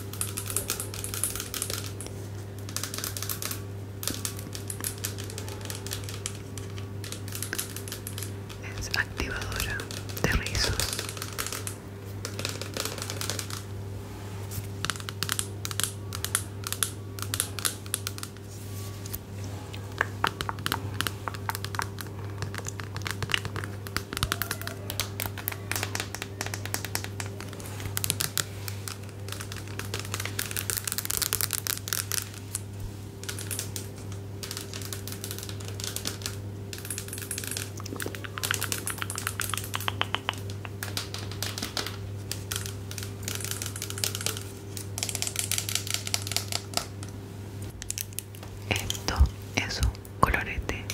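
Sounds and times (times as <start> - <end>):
steady low hum: 0.0 - 50.9
close crinkling and clicks: 20.0 - 49.2.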